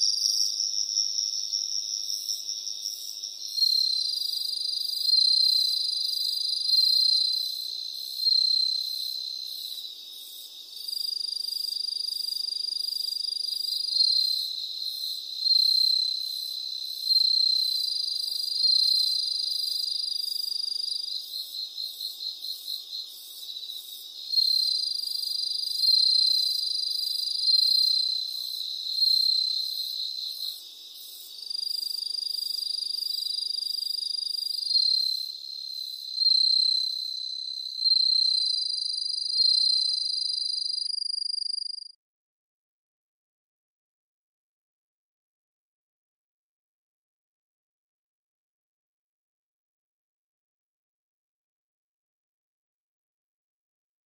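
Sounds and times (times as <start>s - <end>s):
fast pulsing insect chirp: 0.0s - 42.0s.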